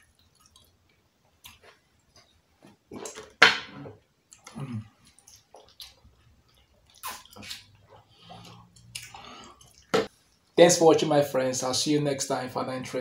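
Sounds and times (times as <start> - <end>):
chewing and lip smacks: 0.0 - 2.3, 4.3 - 10.4.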